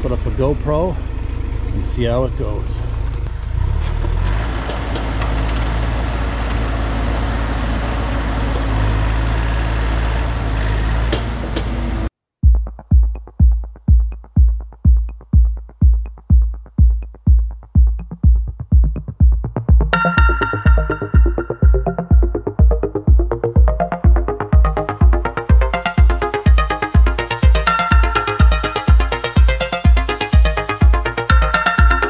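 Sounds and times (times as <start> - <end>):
excavator diesel engine running: 0.0 - 12.1
electronic music with bass drum: 12.4 - 32.0.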